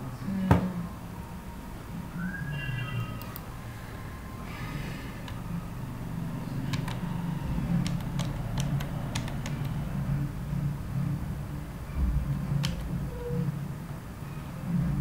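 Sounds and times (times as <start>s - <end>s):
steady low hum: 0.0s - 15.0s
computer keyboard keys clicking: 6.7s - 7.0s, 7.8s - 9.8s, 12.6s - 12.9s.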